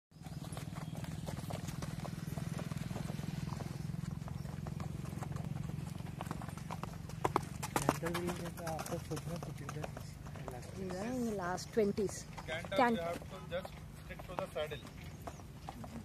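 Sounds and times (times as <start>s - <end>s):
horse hoofbeats in sand: 0.1s - 16.0s.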